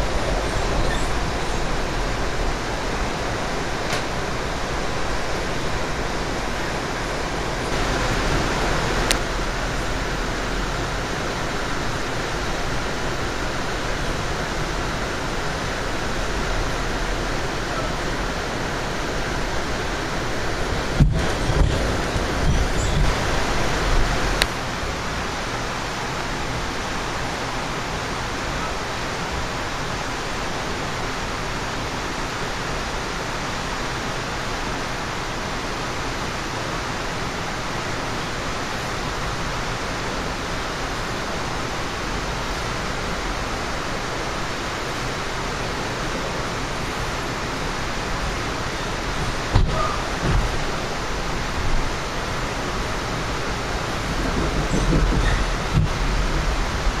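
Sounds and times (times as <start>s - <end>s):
train rushing noise from inside: 0.0s - 57.0s
low rumbling bumps: 53.7s - 57.0s.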